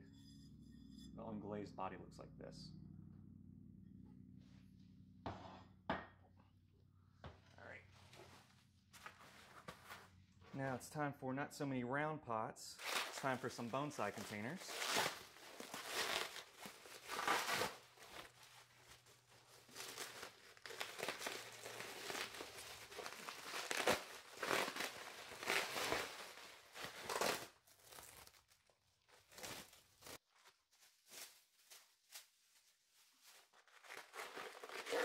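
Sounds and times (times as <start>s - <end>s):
plastic wrap crinkling: 12.8s - 35.0s.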